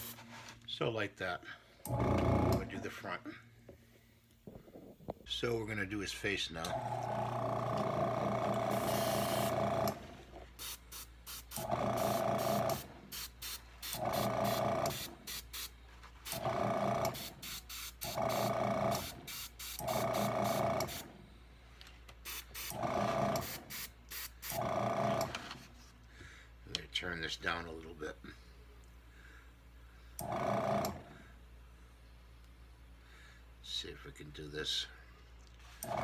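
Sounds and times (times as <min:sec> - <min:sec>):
airbrush spraying hiss: 0:00.0 - 0:00.2, 0:10.6 - 0:11.6, 0:13.1 - 0:14.0, 0:14.9 - 0:15.8, 0:17.2 - 0:18.1.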